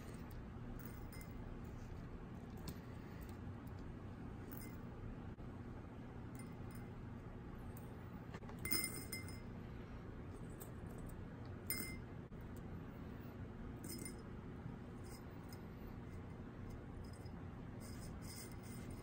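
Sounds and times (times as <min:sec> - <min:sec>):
glass bowl clinking: 0:08.6 - 0:09.5, 0:11.6 - 0:12.1.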